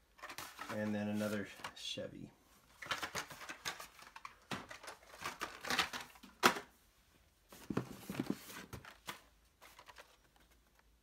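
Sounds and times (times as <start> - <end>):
cardboard cards rustling and clacking: 0.0 - 1.8, 2.7 - 6.7, 7.5 - 11.0
plastic packaging crinkling: 2.8 - 6.3.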